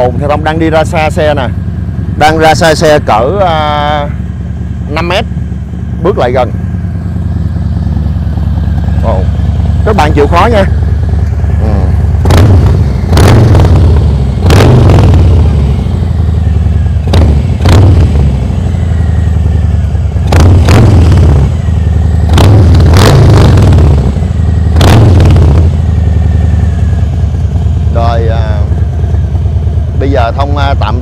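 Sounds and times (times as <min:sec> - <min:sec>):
motorcycle engine idling: 0:00.0 - 0:31.0.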